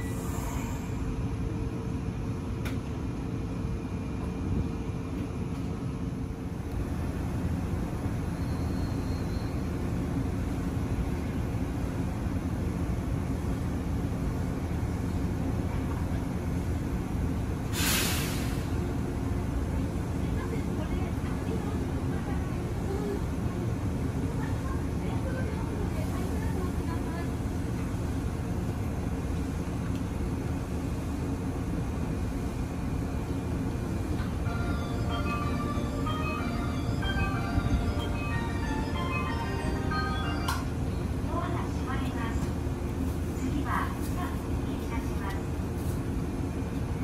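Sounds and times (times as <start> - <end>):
train equipment low hum: 0.0 - 47.0
sharp air hiss: 17.7 - 18.8.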